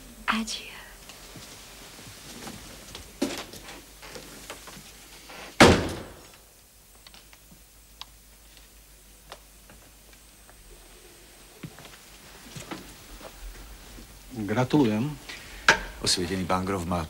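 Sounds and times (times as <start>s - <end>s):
door shutting with thud: 5.6s - 6.3s.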